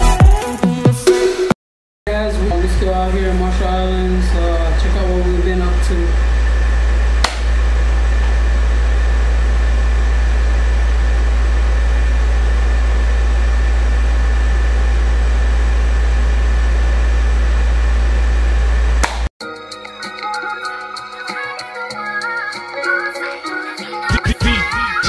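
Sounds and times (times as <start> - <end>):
low mechanical drone with hiss: 2.1 - 19.2.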